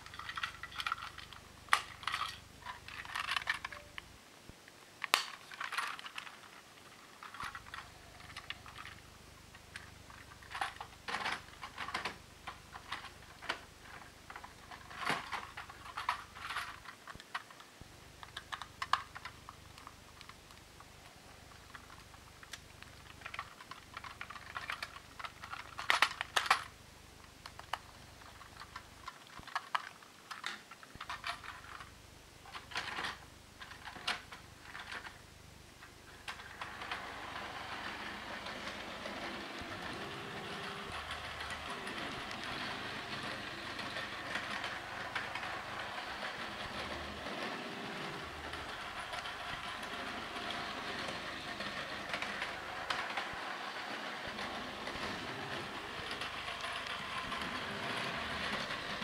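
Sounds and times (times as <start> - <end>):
plastic toy train clicks: 0.0 - 4.0, 5.0 - 6.5, 7.2 - 9.0, 9.7 - 17.6, 18.2 - 20.6, 21.5 - 26.7, 27.4 - 31.9, 32.5 - 35.2, 36.2 - 59.0
wheels on plastic track: 0.0 - 4.0, 5.1 - 26.7, 32.5 - 35.2, 35.8 - 59.0
toy train motor whirring: 36.1 - 59.0.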